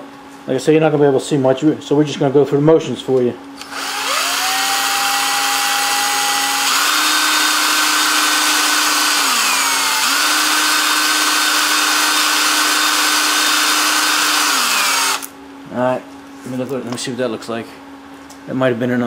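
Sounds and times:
electric drill motor whine: 0:03.6 - 0:15.3.

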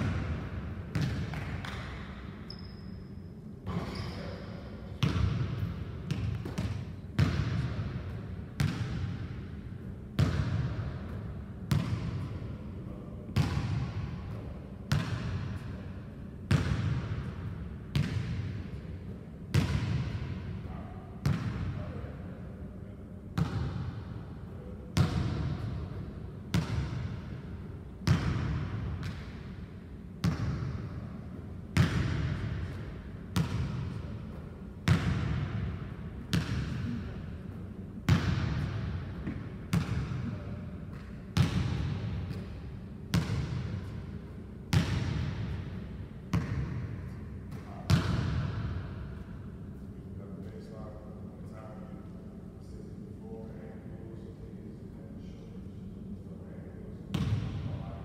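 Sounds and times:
basketball bouncing on hardwood floor: 0:00.9 - 0:01.8.

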